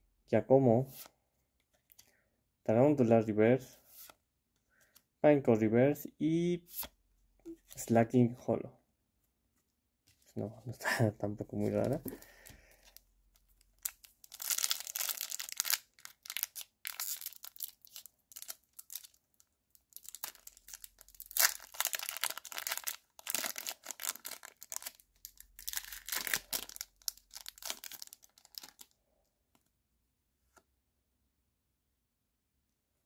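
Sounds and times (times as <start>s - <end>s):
foil wrapper crinkling: 13.6s - 28.9s
foil wrapper tearing: 13.8s - 19.2s, 20.0s - 28.8s.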